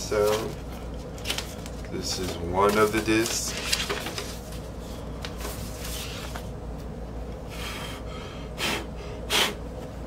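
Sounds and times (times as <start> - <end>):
paper sleeve rustling: 0.0 - 6.5.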